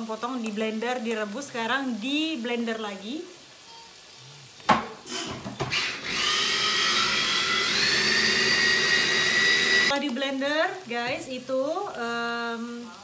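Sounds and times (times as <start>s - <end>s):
blender motor whining: 5.1s - 9.9s.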